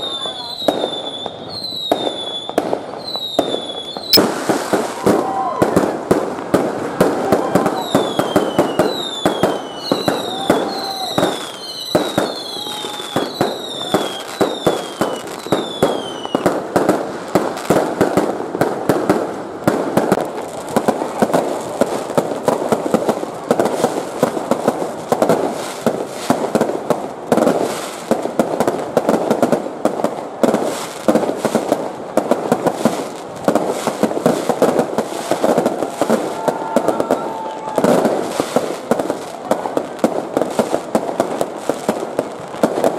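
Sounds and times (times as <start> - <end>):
falling firework whistles: 0.0 - 6.0, 7.2 - 16.6, 33.8 - 38.9
fireworks cracking and banging: 0.0 - 42.9.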